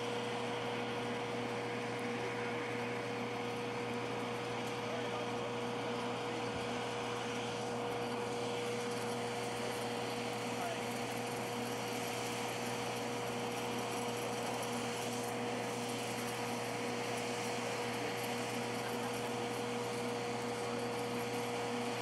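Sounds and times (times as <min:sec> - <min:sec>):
mechanical hum with high whine: 0:00.0 - 0:22.0.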